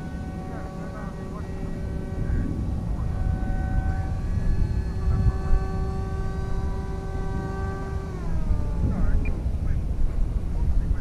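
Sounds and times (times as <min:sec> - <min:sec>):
electric motor and propeller whining: 0:00.0 - 0:11.0
low rumble: 0:00.0 - 0:11.0.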